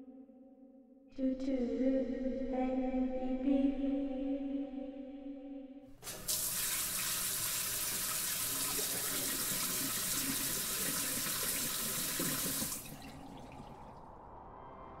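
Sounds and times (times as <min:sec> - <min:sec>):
running water rushing: 0:06.0 - 0:14.1.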